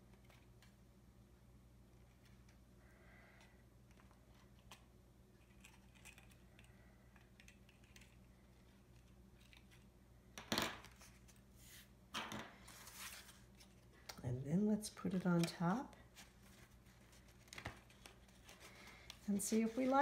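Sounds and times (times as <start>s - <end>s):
card scuffing and rustling: 12.6s - 13.9s.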